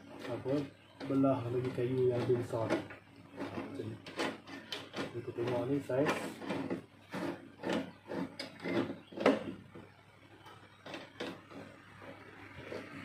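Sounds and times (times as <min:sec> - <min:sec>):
metal scrapes and knocks: 0:00.1 - 0:09.8.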